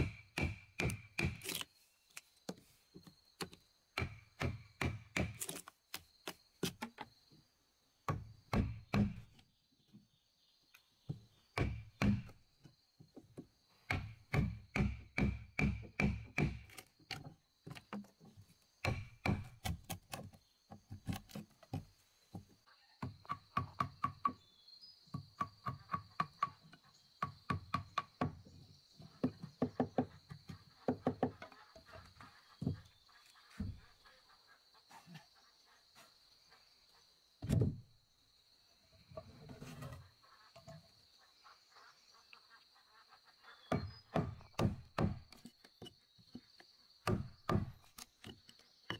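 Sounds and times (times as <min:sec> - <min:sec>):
chisel struck into wood: 0:13.9 - 0:16.7.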